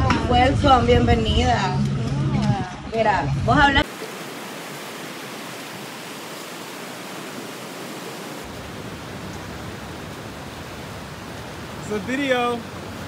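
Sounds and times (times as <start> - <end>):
surf washing over rocks: 3.8 - 13.0.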